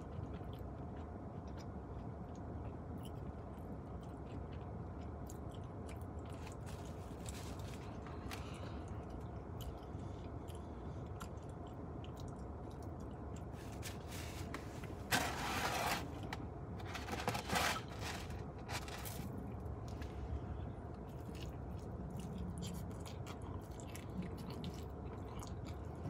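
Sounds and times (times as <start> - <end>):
light chewing: 0.0 - 15.1, 18.0 - 26.0
food packaging rustling: 6.4 - 8.5, 13.5 - 20.1.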